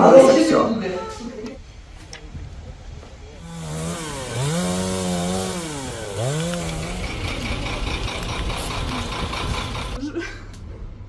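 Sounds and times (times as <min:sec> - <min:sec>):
chainsaw cutting branches: 0:03.4 - 0:10.0.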